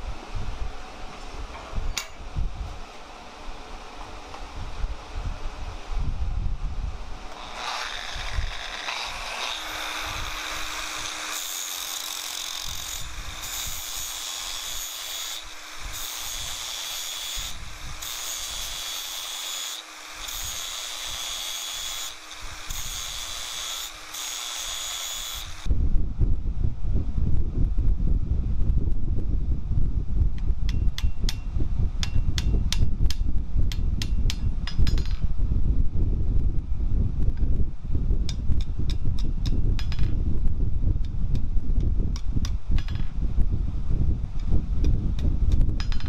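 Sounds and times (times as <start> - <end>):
angle grinder grinding steel: 7.3 - 25.7.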